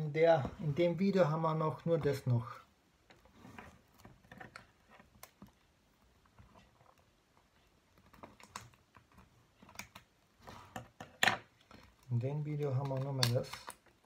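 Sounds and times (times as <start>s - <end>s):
packaging clicks and taps: 10.8s - 14.0s.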